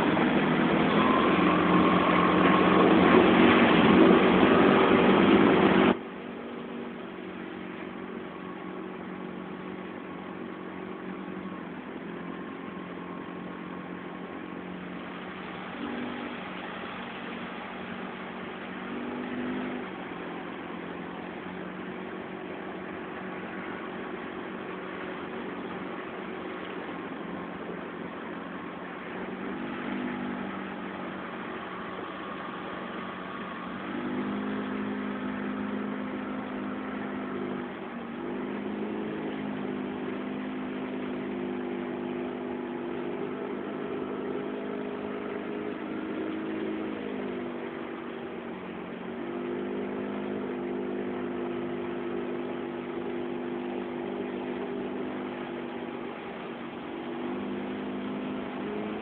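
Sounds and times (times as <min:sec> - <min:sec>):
motorboat engine humming: 0:00.0 - 0:59.0
wind: 0:00.0 - 0:59.0
water hiss: 0:14.9 - 0:42.2.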